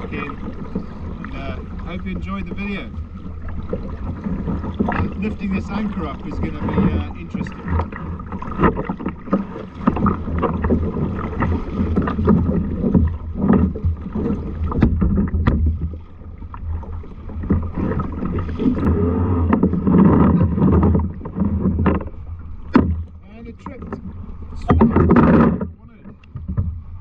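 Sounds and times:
water lapping against kayak: 0.0s - 27.0s
wind buffeting microphone: 16.7s - 27.0s.

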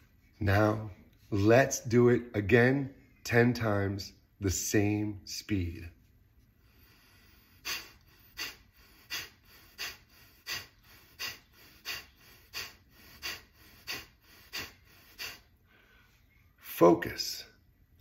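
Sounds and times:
quiet inhales: 6.5s - 16.5s
forceful exhales through nose: 6.7s - 15.6s.

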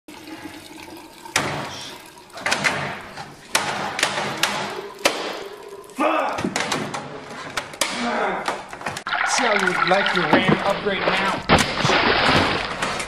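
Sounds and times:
water splashes: 0.1s - 6.4s, 9.0s - 13.0s.

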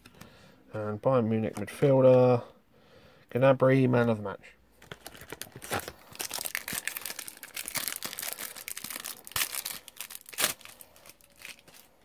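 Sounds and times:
foil wrapper crinkling: 4.8s - 12.0s.

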